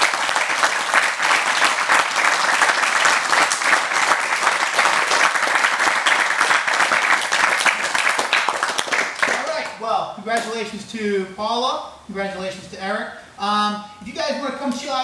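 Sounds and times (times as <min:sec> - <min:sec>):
people clapping: 0:00.0 - 0:09.8.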